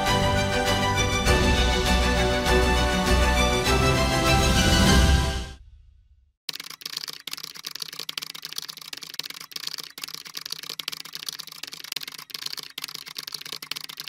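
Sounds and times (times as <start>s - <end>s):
fast keyboard typing: 6.5s - 14.0s.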